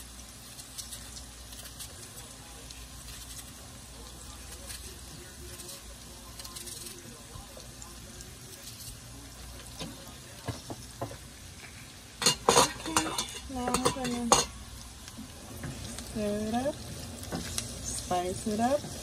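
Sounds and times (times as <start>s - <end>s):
onions sizzling in a frying pan: 0.0s - 19.0s
knocks and scrapes against pan: 12.2s - 14.5s.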